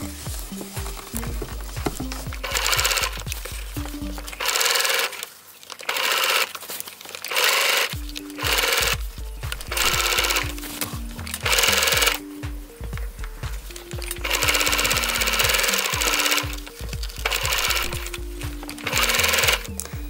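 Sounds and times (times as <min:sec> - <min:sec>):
background music with bass line: 0:00.0 - 0:04.5, 0:08.0 - 0:20.0
sewing machine stitching: 0:02.4 - 0:03.2, 0:04.3 - 0:10.6, 0:11.3 - 0:12.2, 0:14.0 - 0:19.7.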